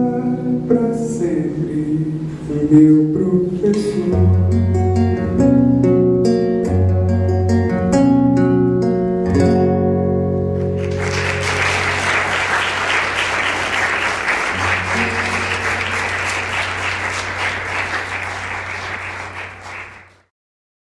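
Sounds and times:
acoustic guitar chord ringing: 4.1s - 12.1s, 14.5s - 16.8s
audience applause: 10.8s - 20.3s.

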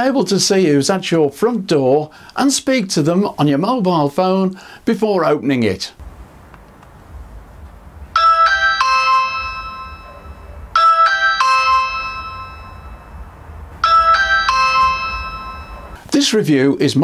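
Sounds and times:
faint low hum: 6.0s - 8.4s
electronic doorbell chime: 8.2s - 13.2s, 13.8s - 16.0s.

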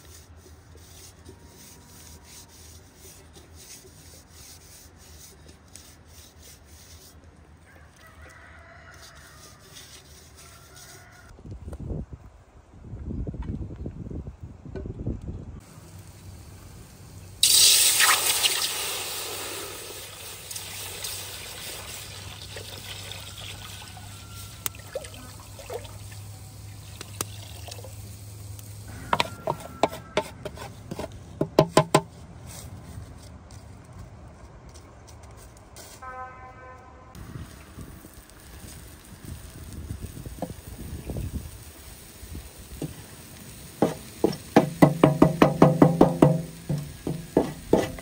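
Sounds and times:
liquid pouring and splashing: 17.4s - 24.0s, 24.7s - 28.1s.

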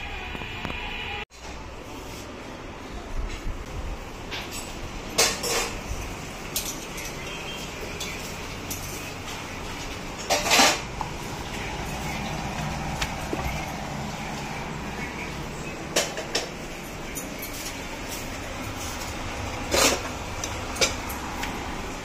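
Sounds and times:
steel utensils and dishes clinking: 4.3s - 21.5s.

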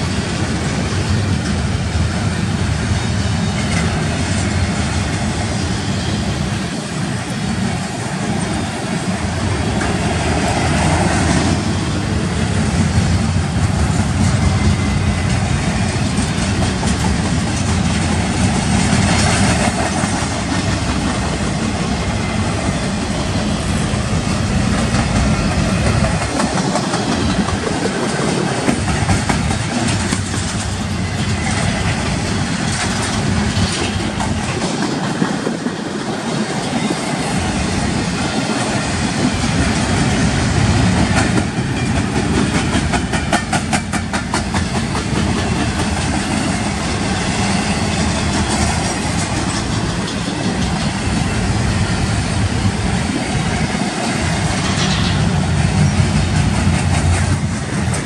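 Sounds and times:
train wheels rumbling on rails: 0.0s - 58.0s
rapid clicking of wheels: 24.7s - 31.6s.

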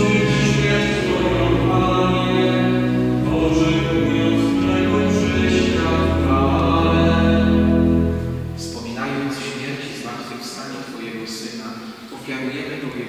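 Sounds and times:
voices singing a hymn: 0.0s - 9.7s
sustained organ chords: 0.0s - 9.9s.

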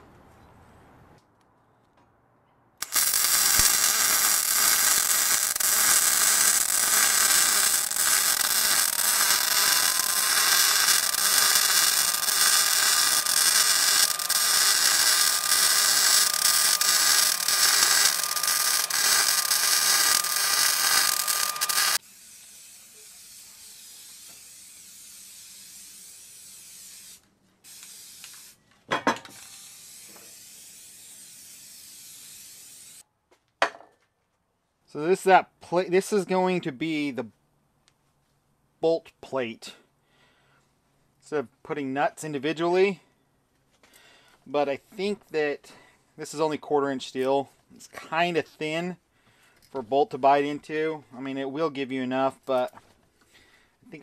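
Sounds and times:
welder crackling hiss: 2.8s - 28.6s, 29.3s - 33.0s.

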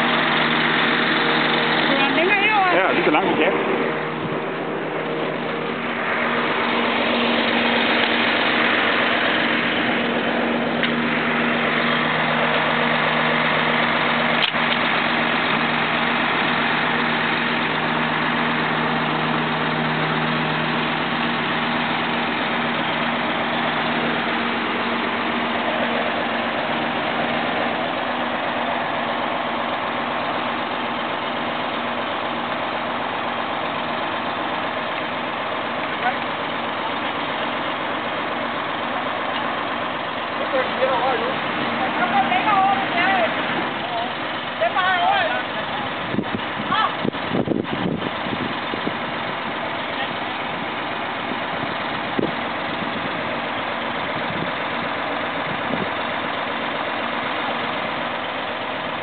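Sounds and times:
crane engine idling: 0.0s - 59.0s.

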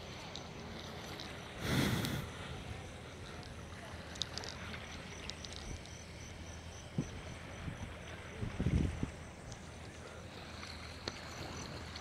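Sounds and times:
wind buffeting microphone: 6.9s - 9.3s.

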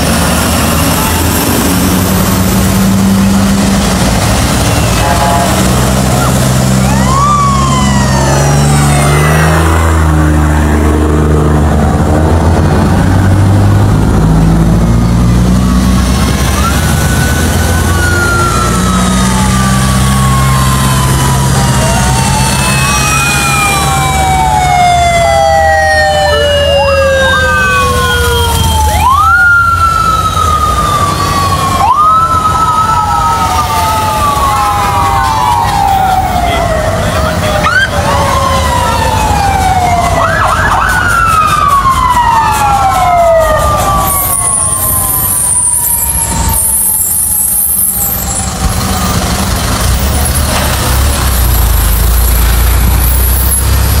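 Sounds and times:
emergency sirens wailing: 0.0s - 54.0s
heavy truck engines rumbling: 0.0s - 54.0s.

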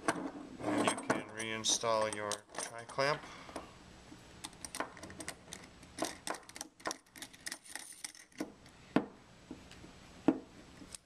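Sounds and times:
small metal clicks and clinks: 0.9s - 3.1s.

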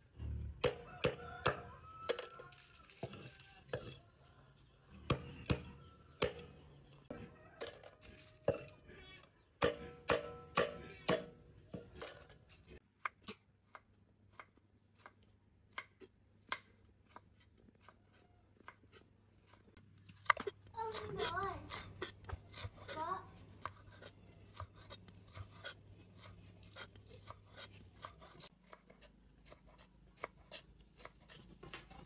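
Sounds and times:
cleaver chopping on wooden board: 0.6s - 1.7s, 9.6s - 11.4s.

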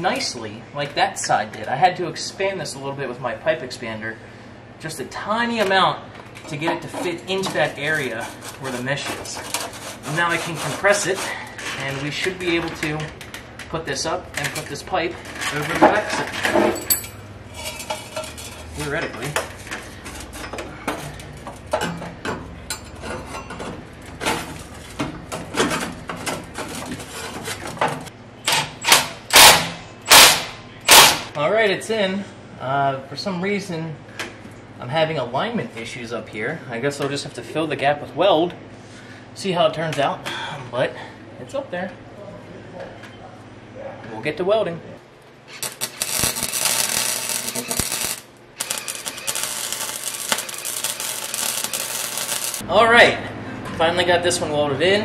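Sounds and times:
metal pipe clinking: 16.8s - 18.4s
welder arc crackling: 45.5s - 52.6s.

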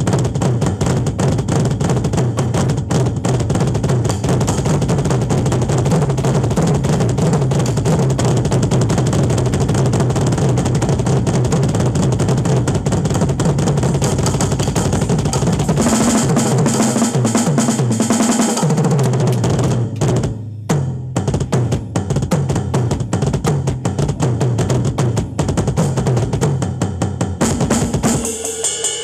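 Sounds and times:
drum kit solo: 0.0s - 29.0s.

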